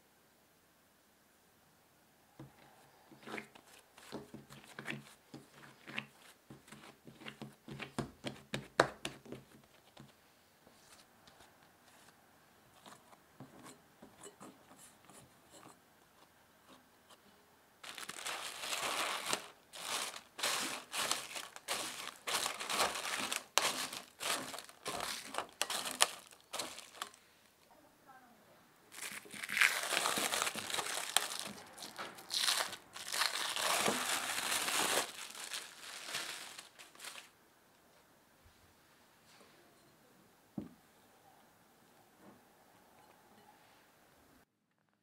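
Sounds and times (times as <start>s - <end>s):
cling wrap crinkling: 17.8s - 27.6s, 28.9s - 37.4s.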